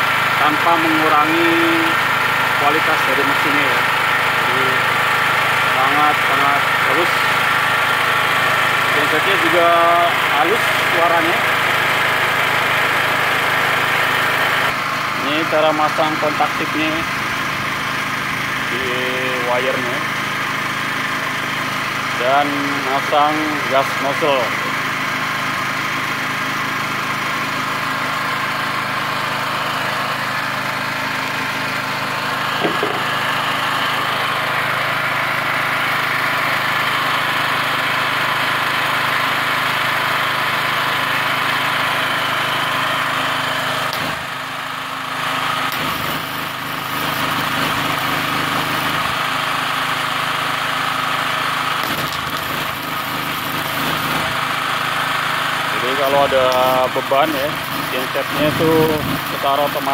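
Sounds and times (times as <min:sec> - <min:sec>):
generator engine running: 0:00.0 - 0:59.9
welding arc crackling: 0:27.7 - 0:59.9.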